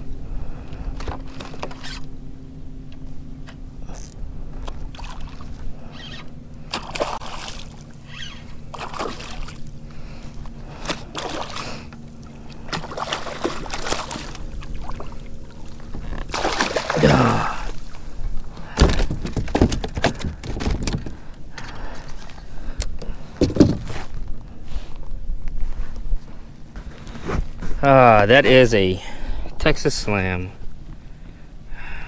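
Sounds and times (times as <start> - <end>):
fish splashing in water: 4.7 - 5.6, 6.6 - 9.7, 10.7 - 18.1.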